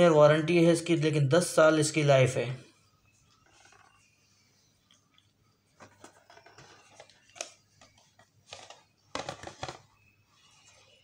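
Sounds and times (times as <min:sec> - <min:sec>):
boxes rustling and scraping: 0:05.7 - 0:11.0.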